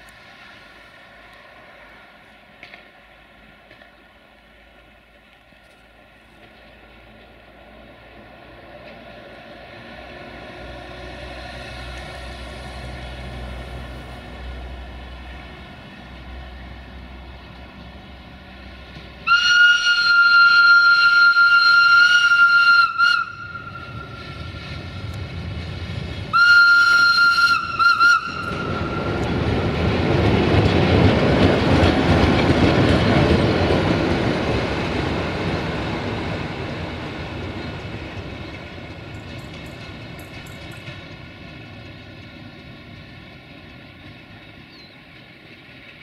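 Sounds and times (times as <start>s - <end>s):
diesel locomotive passing: 0.0s - 46.0s
locomotive whistle-horn blasts: 19.2s - 24.2s, 26.3s - 29.2s.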